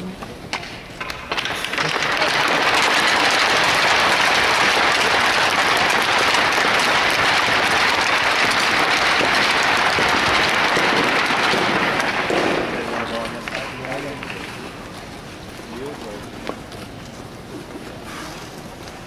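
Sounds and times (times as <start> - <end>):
crowd applauding: 1.3 - 16.2.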